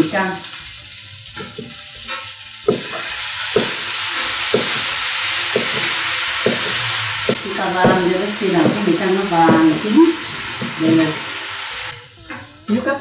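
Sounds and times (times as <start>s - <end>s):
strips sizzling in frying pan: 0.0s - 13.0s
chopsticks knocking against pan: 2.7s - 3.9s, 4.5s - 4.9s, 5.6s - 8.0s.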